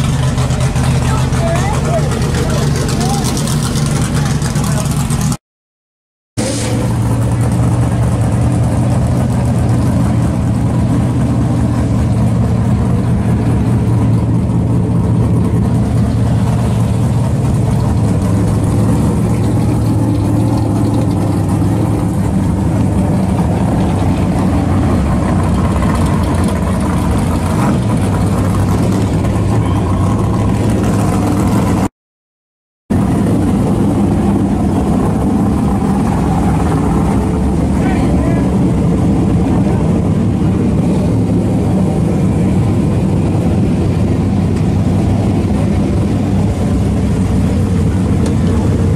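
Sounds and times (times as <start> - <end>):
car engine idling: 0.0 - 5.4, 6.4 - 31.9, 32.9 - 48.9.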